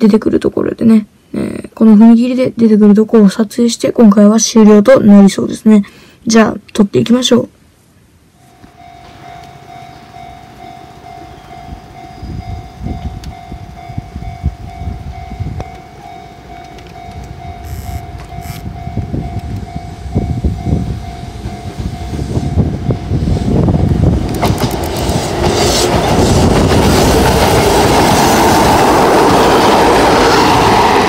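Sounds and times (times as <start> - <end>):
level crossing bell ringing: 8.4 - 23.2
electric train rumbling on rails: 8.4 - 31.0.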